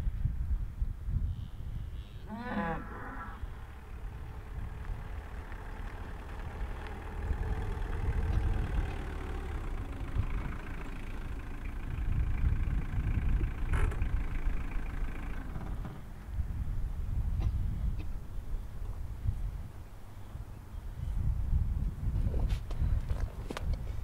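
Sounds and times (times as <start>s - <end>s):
van engine driving past: 2.4s - 18.8s.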